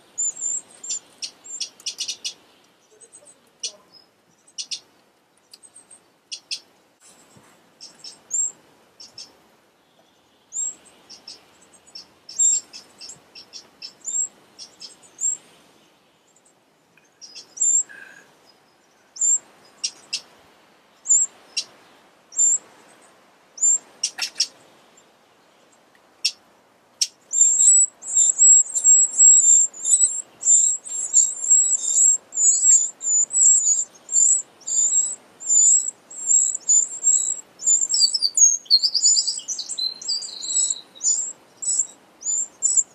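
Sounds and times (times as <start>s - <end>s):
nestlings peeping: 0.0s - 15.5s, 16.3s - 20.3s, 21.0s - 24.6s, 27.0s - 42.9s.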